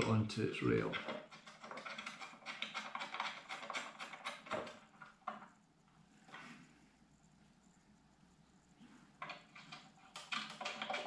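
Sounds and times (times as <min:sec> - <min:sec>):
small hardware clicking and tapping: 0:00.0 - 0:05.6, 0:09.2 - 0:11.0.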